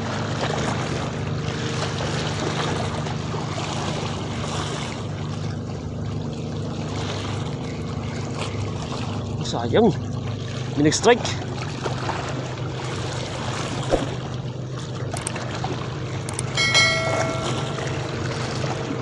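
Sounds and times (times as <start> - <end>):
boat motor humming: 0.0 - 19.0
water noise: 10.0 - 19.0.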